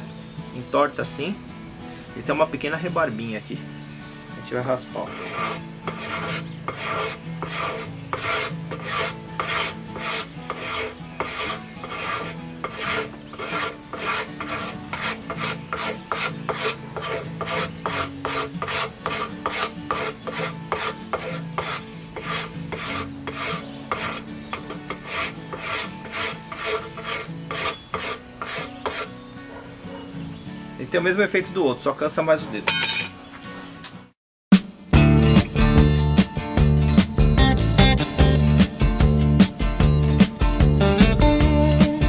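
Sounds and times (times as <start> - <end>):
card scraper scraping wood: 5.0 - 29.7.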